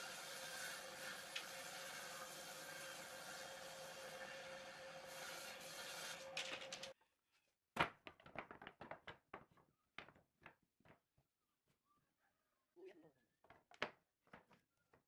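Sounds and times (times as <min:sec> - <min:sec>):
table saw running: 0:00.0 - 0:06.9.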